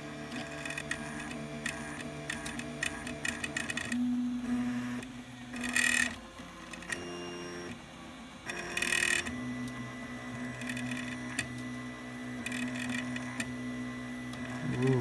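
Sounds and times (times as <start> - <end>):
stepper motors whining: 11.8 - 15.0.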